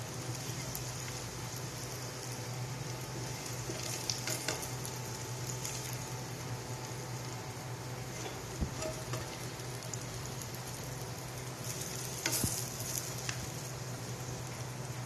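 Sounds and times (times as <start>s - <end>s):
frying sizzle: 0.0s - 15.0s
spatula scraping pan: 8.1s - 9.4s.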